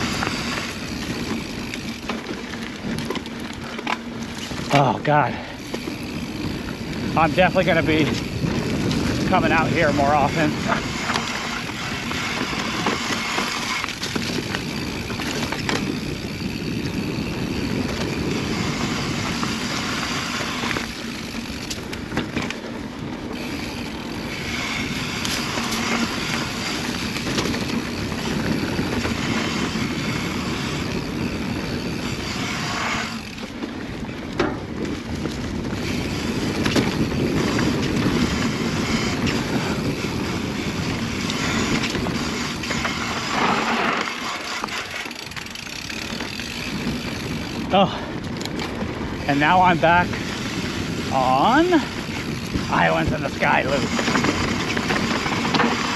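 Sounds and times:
tyres rushing on dirt: 0:00.0 - 0:55.9
wind on microphone: 0:05.6 - 0:21.2, 0:23.1 - 0:44.7, 0:46.0 - 0:55.9
bike knocking over bumps: 0:34.2 - 0:47.6.

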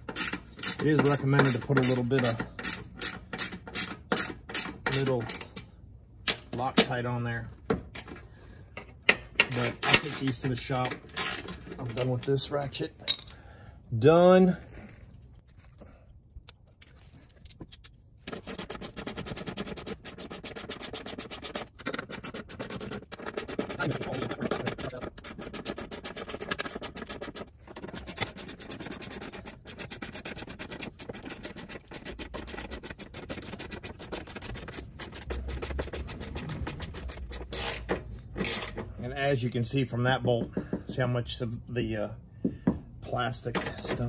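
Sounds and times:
hand ratchet clicking: 0:00.0 - 0:05.5, 0:18.3 - 0:38.8.

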